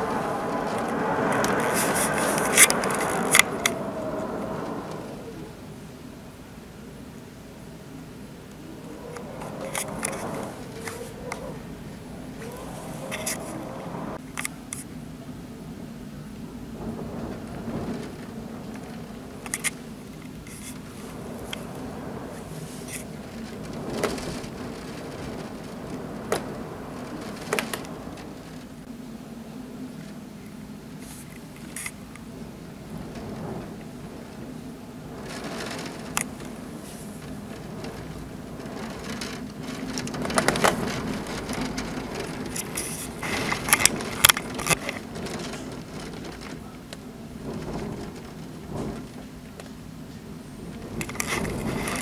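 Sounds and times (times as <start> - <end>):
sharp crackling clicks: 0.0 - 5.4, 8.5 - 11.6, 17.7 - 21.8, 22.4 - 28.9, 31.3 - 32.2, 35.1 - 49.8
low hum: 0.0 - 14.3
steady rain hiss: 0.0 - 52.0.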